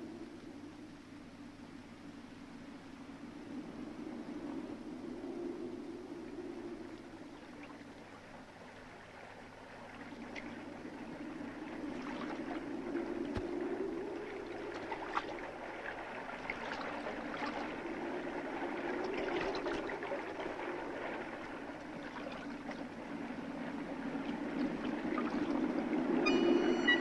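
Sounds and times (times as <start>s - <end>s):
river water flowing and splashing: 7.4s - 27.0s.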